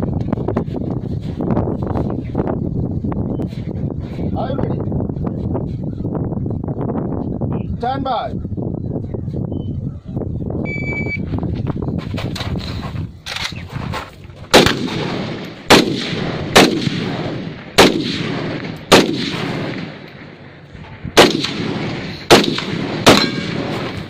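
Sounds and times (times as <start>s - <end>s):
handgun shots with echo: 14.5s - 20.1s, 21.2s - 24.0s.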